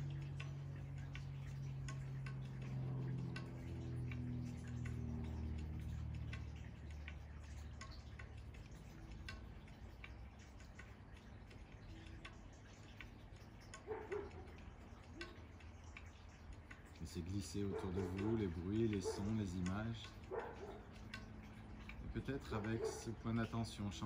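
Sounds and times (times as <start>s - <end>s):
low hum: 0.0s - 17.1s
faint ticking clicks: 0.0s - 24.0s.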